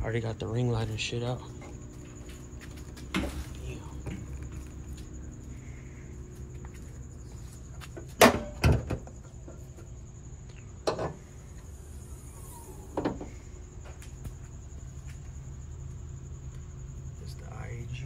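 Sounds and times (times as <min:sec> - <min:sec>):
faint high-pitched whine: 0:00.0 - 0:18.0
car hood clunking open: 0:08.2 - 0:09.1.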